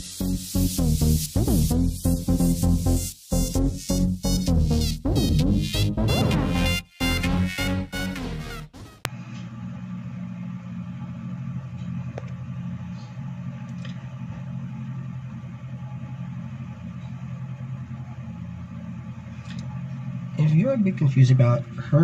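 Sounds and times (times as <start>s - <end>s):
steady low hum: 9.0s - 22.0s.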